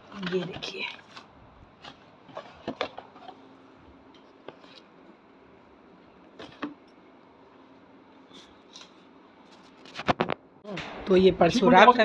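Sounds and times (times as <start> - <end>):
faint steady hum: 0.0 - 12.0
packets and boxes rustling: 0.1 - 3.6.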